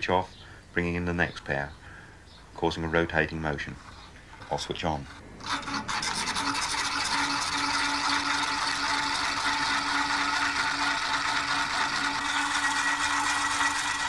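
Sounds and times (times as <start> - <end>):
contacts scraping rattle: 3.0 - 14.0
electric motor humming: 5.2 - 14.0.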